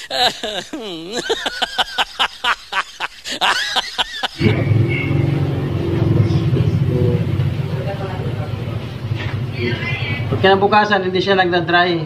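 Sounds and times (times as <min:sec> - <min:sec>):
high-pitched cackling laugh: 0:00.0 - 0:04.7.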